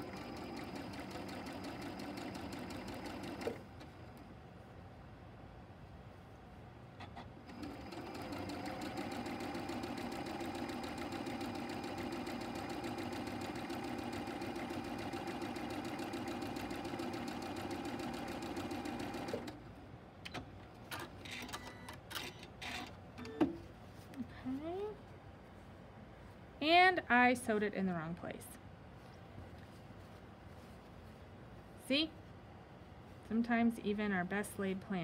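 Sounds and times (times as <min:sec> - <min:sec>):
sewing machine stitching: 0:00.0 - 0:03.7, 0:07.5 - 0:19.6.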